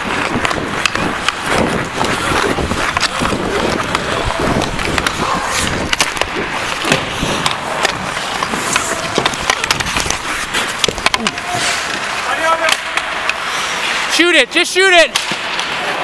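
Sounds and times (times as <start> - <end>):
hockey sticks and puck knocking: 0.0 - 16.0
skate blades scraping ice: 0.0 - 16.0.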